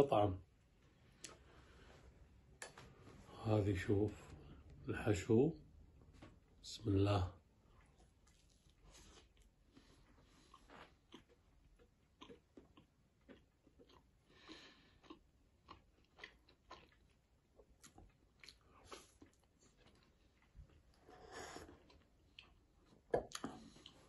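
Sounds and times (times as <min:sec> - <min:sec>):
chewing with wet mouth clicks: 0:10.4 - 0:21.0, 0:21.7 - 0:24.0.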